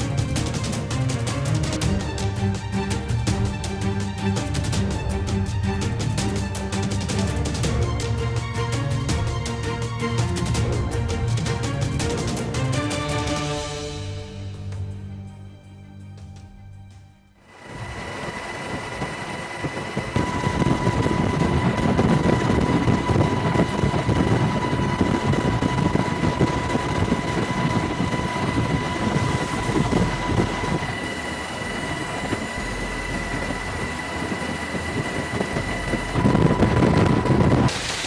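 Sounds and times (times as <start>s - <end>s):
high whine: 17.4s - 38.0s
loud mechanical rumble: 17.4s - 38.0s.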